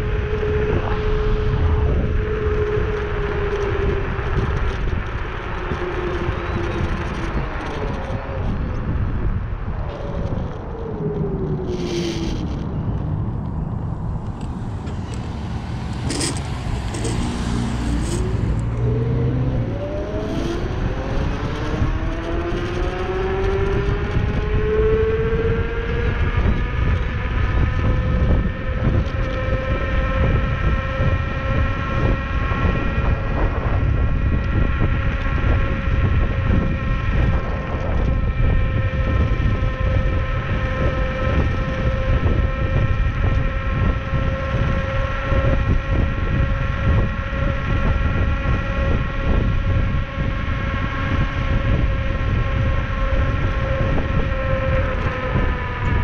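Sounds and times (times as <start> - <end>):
wind rumble on microphone: 0.0 - 56.0
scooter motor running: 13.8 - 20.3.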